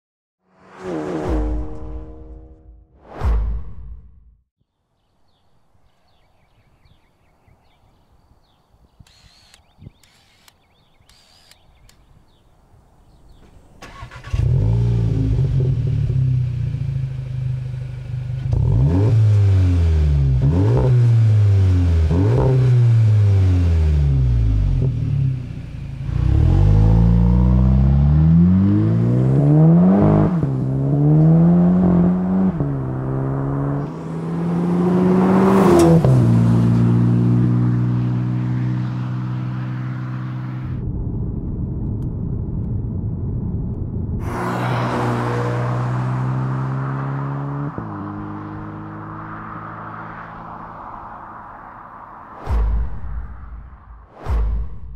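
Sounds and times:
car engine starting: 0:13.8 - 0:40.4
car accelerating hard: 0:26.0 - 0:40.8, 0:44.2 - 0:51.6.

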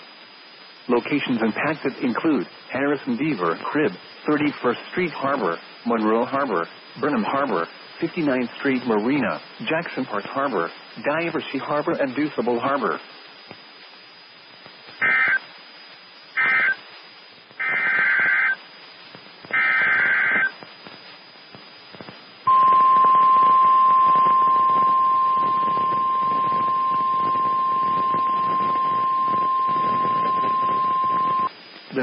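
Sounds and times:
loud steady warning alarm tone: 0:15.0 - 0:15.4, 0:16.4 - 0:16.8, 0:17.6 - 0:18.6, 0:19.5 - 0:20.6, 0:22.5 - 0:31.5
warbling data bursts: 0:15.0 - 0:15.5, 0:16.3 - 0:16.9, 0:17.6 - 0:18.7, 0:19.4 - 0:21.0, 0:22.0 - 0:32.0.

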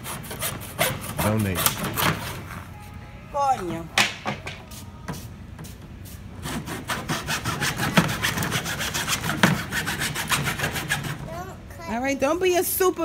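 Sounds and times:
hand saw cutting wood: 0:00.0 - 0:02.5, 0:06.4 - 0:11.2.

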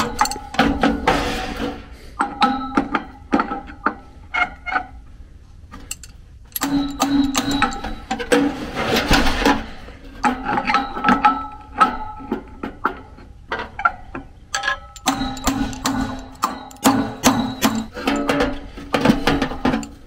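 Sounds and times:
wrench knocking on metal: 0:00.0 - 0:00.9, 0:05.9 - 0:08.3, 0:14.6 - 0:20.0
metal ringing: 0:00.0 - 0:03.3, 0:05.8 - 0:08.6, 0:14.5 - 0:20.0.

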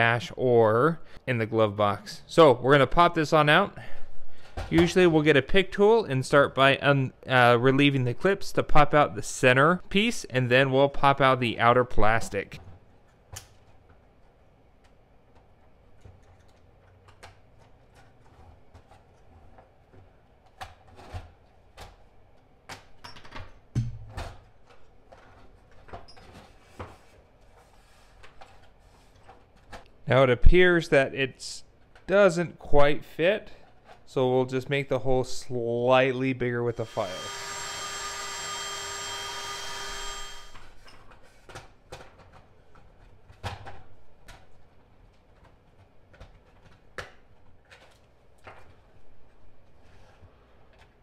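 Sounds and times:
drill whine with grinding: 0:36.7 - 0:40.8.

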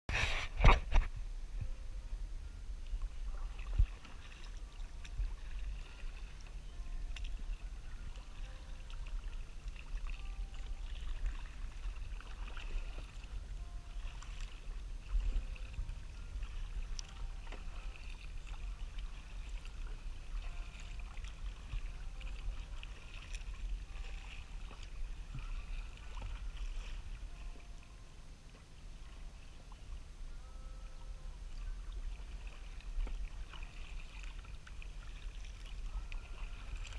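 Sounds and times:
steady low rumble: 0:00.2 - 0:36.9
paddle strokes splashing water: 0:02.9 - 0:30.3, 0:31.3 - 0:36.9.

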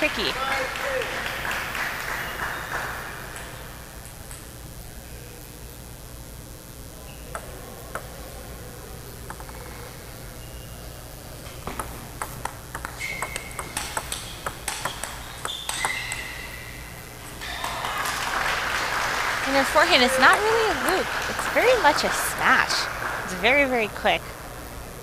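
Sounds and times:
applause: 0:00.0 - 0:03.8, 0:17.4 - 0:24.2
ping-pong ball clicks: 0:02.5 - 0:04.6, 0:07.1 - 0:08.6, 0:09.2 - 0:10.8, 0:11.4 - 0:17.7, 0:19.8 - 0:21.0
shoe squeaks on floor: 0:12.9 - 0:17.0.

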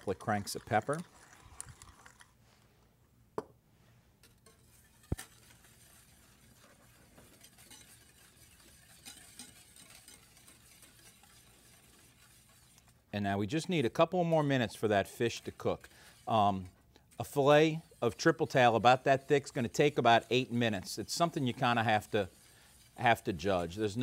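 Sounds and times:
whisk stirring sauce: 0:00.0 - 0:02.3, 0:04.2 - 0:24.0
pepper mill grinding: 0:00.0 - 0:02.4.

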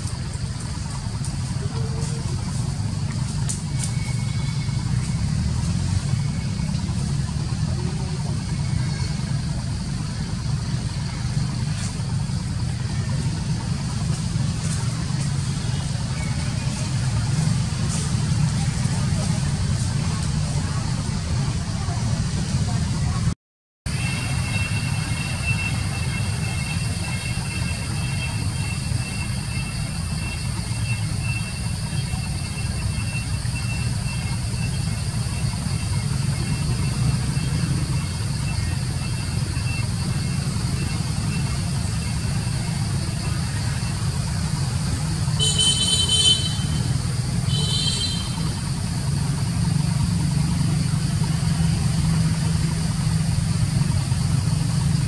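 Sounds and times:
vehicle engine idling: 0:00.0 - 0:55.0
horn toots: 0:45.2 - 0:48.7.

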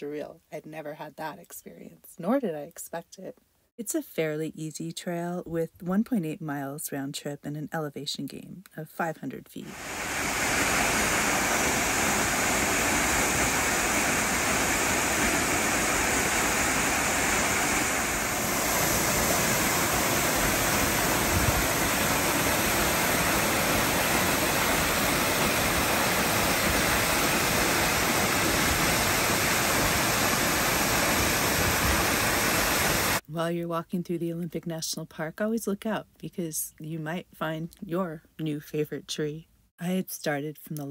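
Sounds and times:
waterfall rushing: 0:09.7 - 0:33.2.

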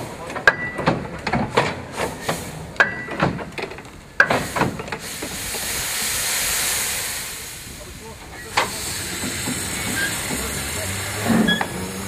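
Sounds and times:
steam locomotive chuffing: 0:04.1 - 0:12.0
hiss of escaping steam: 0:04.2 - 0:12.0
short squeal: 0:09.8 - 0:10.3.

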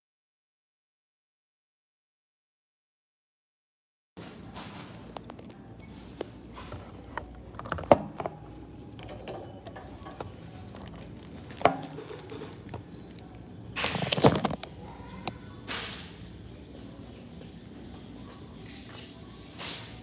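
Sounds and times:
shopping cart rattling clatter: 0:08.4 - 0:14.6
shopping cart clicks and knocks: 0:09.0 - 0:13.2.

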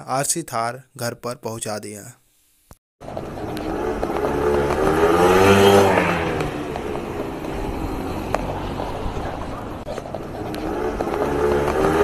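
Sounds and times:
motor scooter engine passing by: 0:03.1 - 0:12.0.

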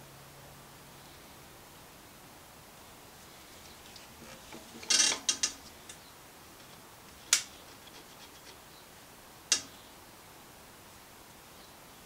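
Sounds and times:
lathe chuck metal clicks: 0:03.9 - 0:06.0, 0:09.5 - 0:09.7.

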